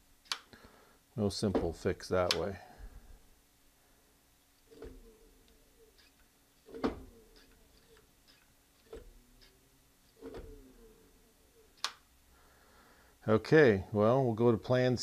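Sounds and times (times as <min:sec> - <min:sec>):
faint ticking: 0:03.8 - 0:13.3.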